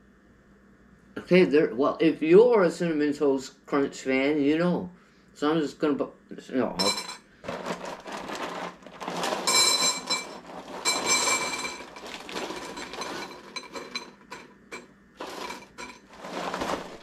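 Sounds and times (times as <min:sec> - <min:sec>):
cereal pouring into ceramic bowl: 0:07.5 - 0:17.0.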